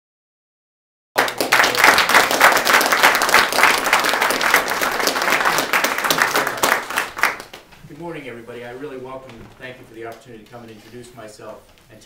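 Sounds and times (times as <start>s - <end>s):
audience applauding: 1.2s - 7.7s.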